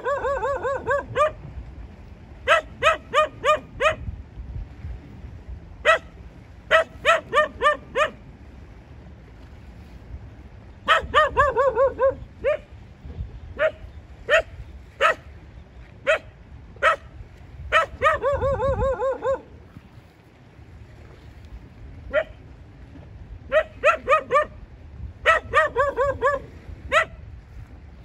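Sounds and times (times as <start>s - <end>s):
dog barking: 0.0s - 1.4s, 2.4s - 4.0s, 5.8s - 6.1s, 6.7s - 8.2s, 10.9s - 12.7s, 13.6s - 15.3s, 16.0s - 17.1s, 17.7s - 19.5s, 22.1s - 22.4s, 23.5s - 24.6s, 25.2s - 27.2s.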